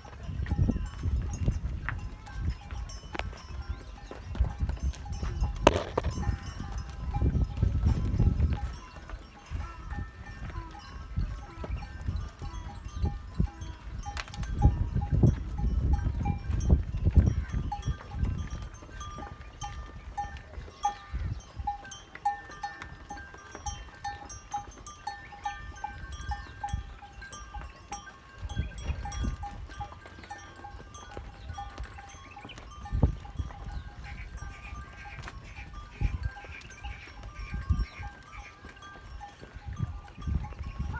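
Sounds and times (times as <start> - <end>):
cattle bells clinking: 0.0 - 40.9.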